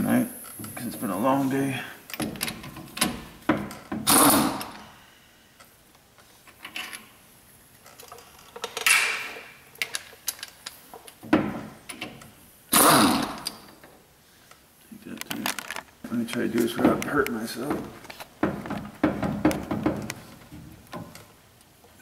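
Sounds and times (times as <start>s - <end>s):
small metal clicks: 7.8s - 11.2s.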